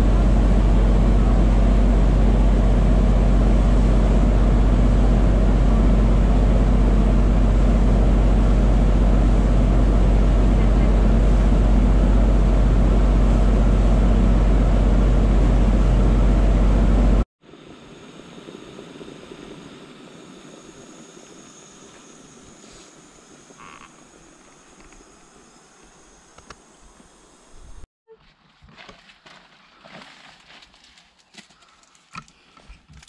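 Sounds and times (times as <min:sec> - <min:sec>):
deep boat engine rumble: 0:00.0 - 0:17.3
rush of wind and wake: 0:00.0 - 0:23.9.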